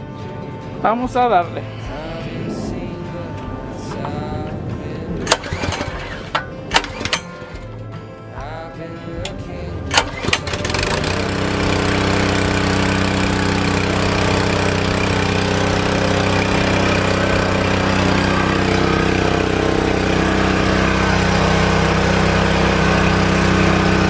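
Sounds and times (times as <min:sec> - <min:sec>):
engine running steadily: 0:00.0 - 0:24.0
recoil cord pull rattle: 0:05.3 - 0:07.9, 0:09.2 - 0:14.0.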